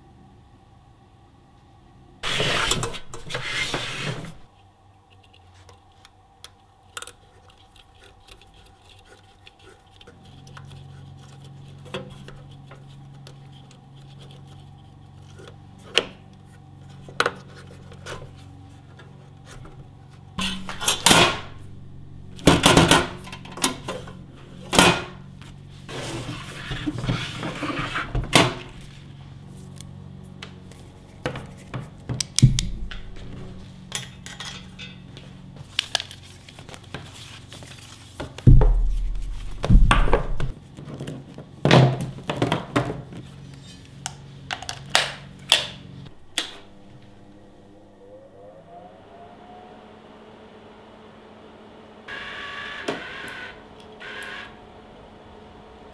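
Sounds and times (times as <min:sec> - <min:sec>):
steady low hum: 0:00.0 - 0:40.7, 0:43.1 - 0:52.2
torch cable rustling and knocking: 0:38.1 - 0:43.2.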